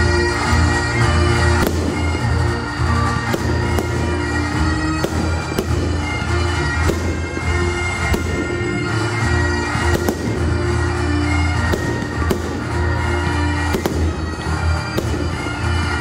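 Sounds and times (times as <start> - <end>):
bagpipe music: 0.0 - 16.0
fireworks bangs: 0.0 - 16.0.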